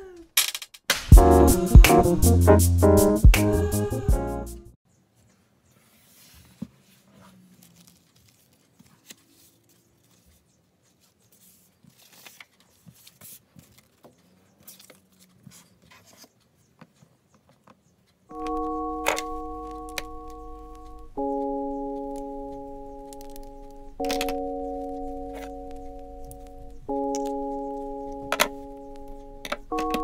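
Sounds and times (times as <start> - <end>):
paper rustling: 5.7 - 17.8.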